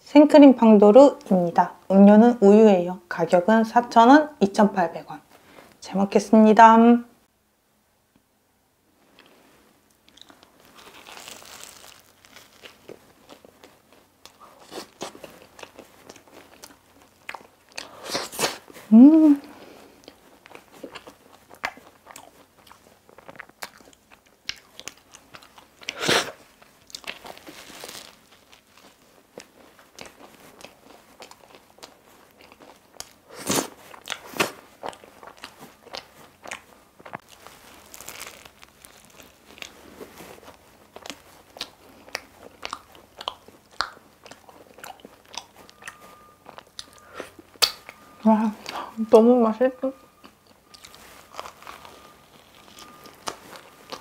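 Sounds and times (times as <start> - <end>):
flaky pastry crackling when bitten: 10.0 - 18.7, 20.0 - 54.0.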